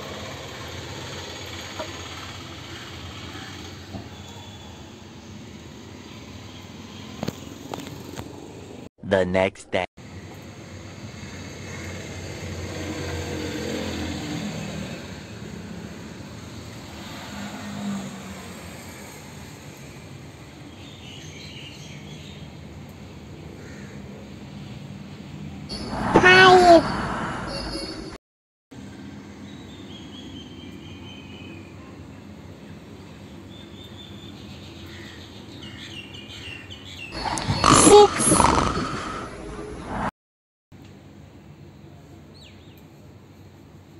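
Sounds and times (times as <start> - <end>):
outdoor background noise: 0.0 - 40.1, 40.8 - 43.9
vehicle passing: 11.2 - 15.9, 16.8 - 19.2, 25.7 - 28.1.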